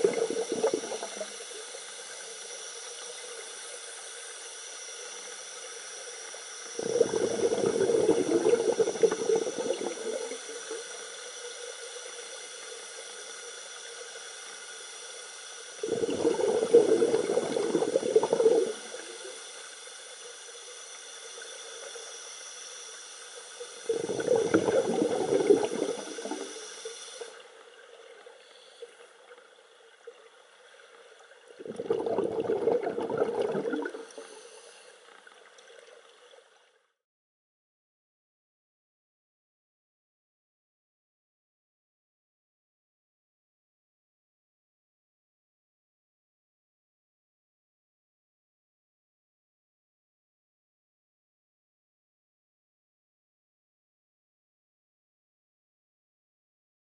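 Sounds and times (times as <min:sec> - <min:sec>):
underwater exhaust bubbles: 0:00.0 - 0:02.0, 0:05.1 - 0:11.2, 0:15.8 - 0:19.4, 0:23.7 - 0:27.3, 0:31.4 - 0:34.5
steady underwater hiss: 0:00.0 - 0:37.0.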